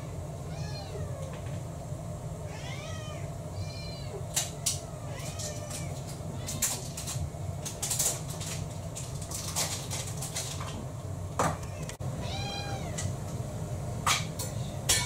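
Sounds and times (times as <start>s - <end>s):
steady low hum: 0.0s - 15.0s
cat meowing: 0.5s - 1.4s, 2.5s - 6.7s, 11.7s - 13.1s.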